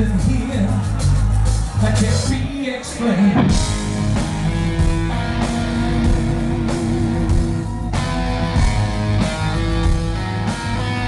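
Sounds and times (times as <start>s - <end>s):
live hard rock band: 0.0s - 11.0s
electric guitar: 3.1s - 11.0s.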